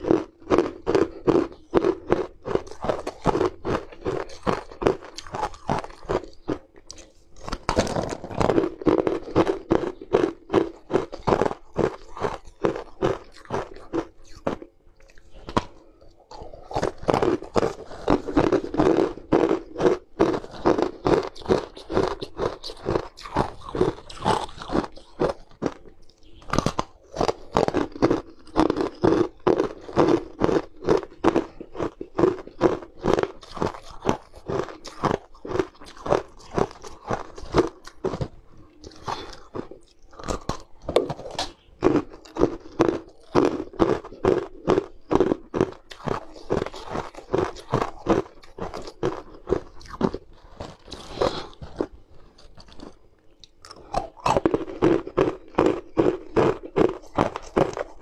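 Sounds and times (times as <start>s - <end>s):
ice cubes crunched by teeth: 0.0s - 58.0s.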